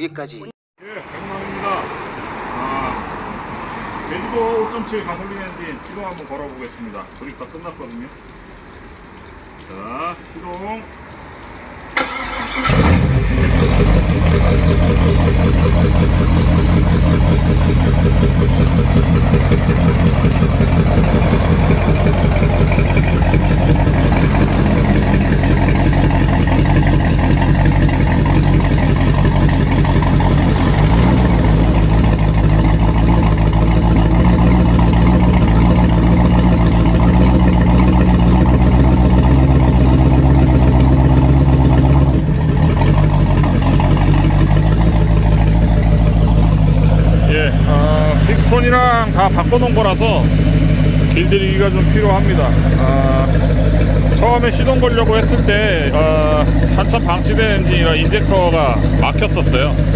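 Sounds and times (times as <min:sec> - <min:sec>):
marine engine running: 0:12.0 - 0:59.9.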